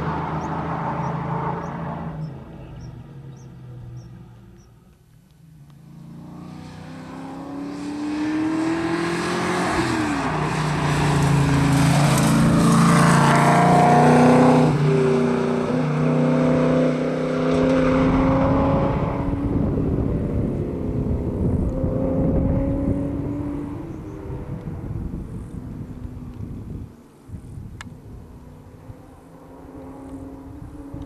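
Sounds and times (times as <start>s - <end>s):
rally car engine accelerating: 5.8s - 24.9s.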